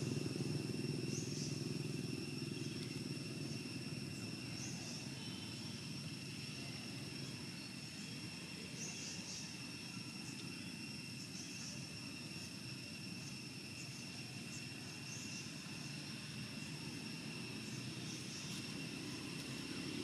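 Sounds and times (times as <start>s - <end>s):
insect drone: 0.0s - 20.0s.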